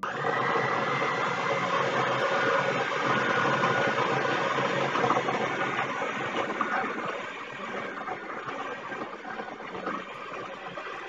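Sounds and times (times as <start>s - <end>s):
electric stand mixer running: 0.0s - 11.0s.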